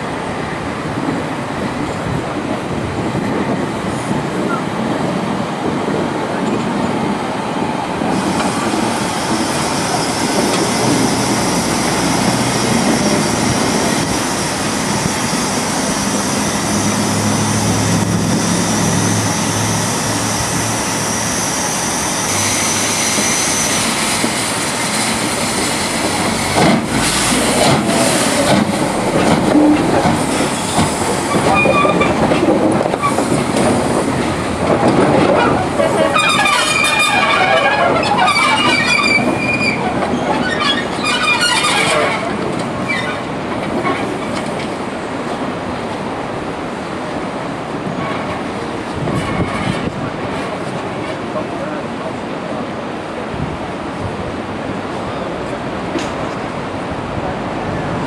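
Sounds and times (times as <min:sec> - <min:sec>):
steam locomotive moving slowly: 0:00.0 - 0:58.0
high hiss of steam: 0:08.1 - 0:29.2.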